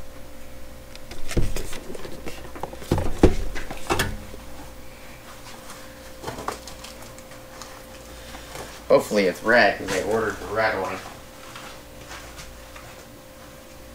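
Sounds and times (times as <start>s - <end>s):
faint steady hum: 0.0s - 13.9s
cardboard rustling: 1.1s - 3.9s
cardboard box knocks and thumps: 2.7s - 3.7s.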